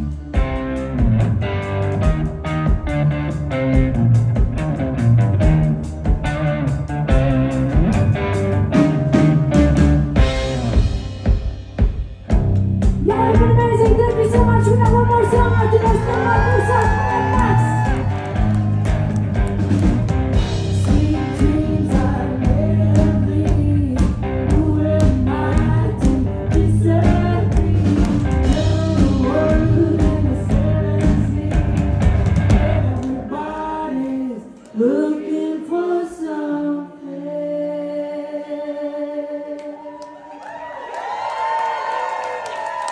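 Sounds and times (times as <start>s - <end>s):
drum kit: 0.0s - 33.4s
electric guitar: 0.0s - 33.6s
woman singing: 13.0s - 17.9s, 20.7s - 40.0s.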